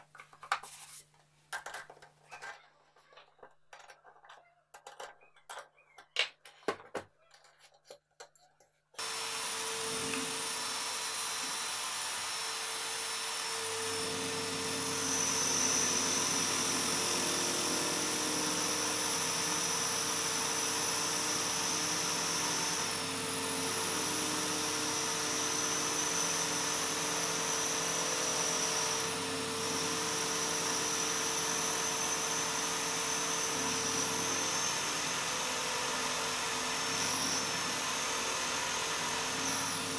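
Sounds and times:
drill press whining: 9.0 - 39.9.

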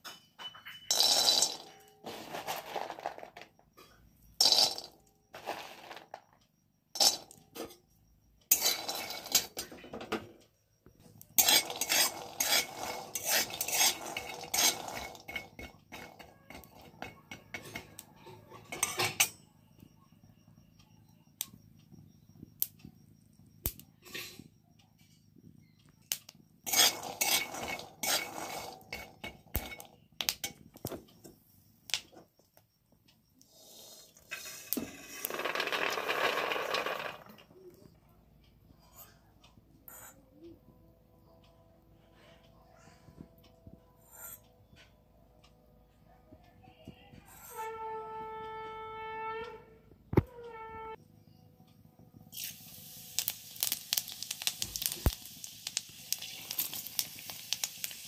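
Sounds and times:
metal spatula scraping pan: 0.0 - 3.4, 4.4 - 6.0, 8.5 - 9.7, 11.4 - 19.4, 26.6 - 29.9, 33.6 - 37.2
nuts rattling against pan: 0.6 - 3.6, 4.4 - 6.4, 8.5 - 10.1, 11.4 - 19.3, 26.6 - 31.0, 34.3 - 37.4, 53.2 - 58.0.

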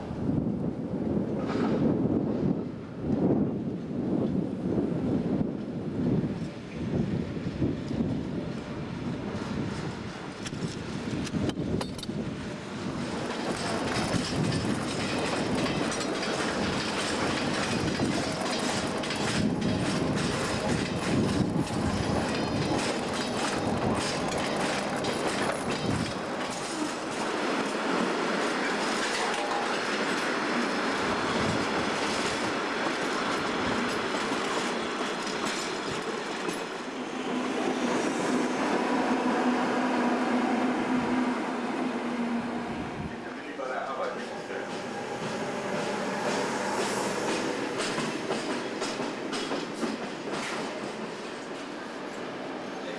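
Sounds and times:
wagon wheels clattering over rails: 13.1 - 27.8
diesel locomotive engine hum: 30.6 - 52.8.

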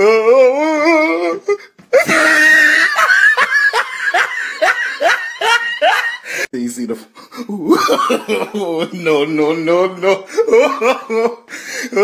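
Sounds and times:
person laughing hysterically: 1.9 - 6.5, 7.4 - 9.1, 10.2 - 12.0.

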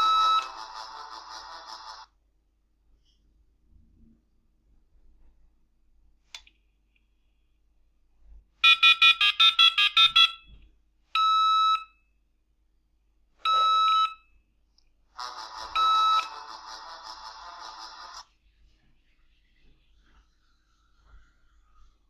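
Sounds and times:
buzzy electronic modem tone: 15.3 - 18.2.

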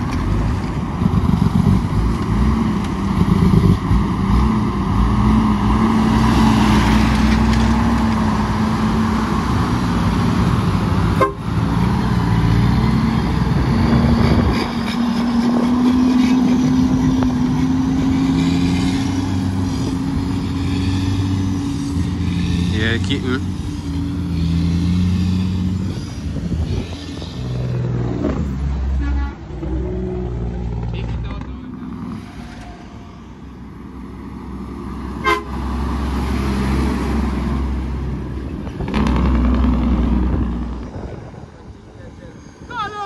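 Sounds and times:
diesel truck engine driving: 0.0 - 43.0.

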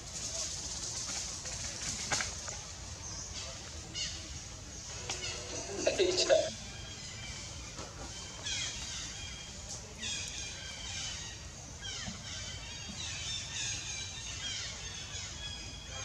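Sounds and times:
high-pitched animal calls: 5.2 - 6.6.

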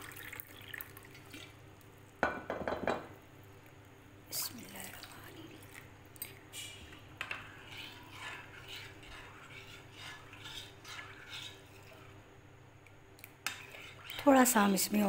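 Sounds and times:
metal spoon scraping glass bowl: 7.2 - 12.1, 13.4 - 14.3.

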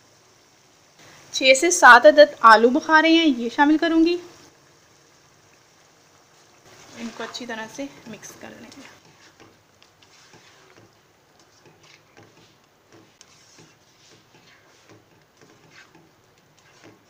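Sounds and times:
metal spoon stirring in a pan: 6.4 - 17.0.

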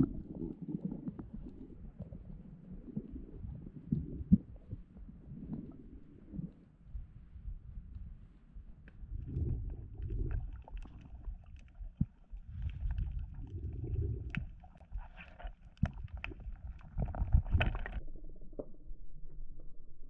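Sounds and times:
underwater swishes of water: 0.0 - 18.2
sharp clicks and crackles: 10.0 - 18.8.

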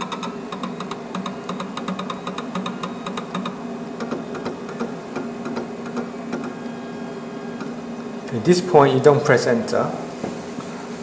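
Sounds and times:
vinyl cutter motor clicks: 0.0 - 6.7
faint motor whine: 0.0 - 11.0.

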